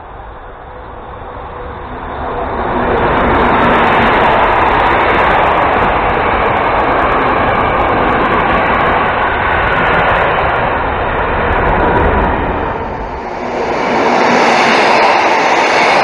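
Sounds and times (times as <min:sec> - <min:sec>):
train coaches rumbling on rails: 0:00.0 - 0:16.0
diesel locomotive humming: 0:10.8 - 0:16.0.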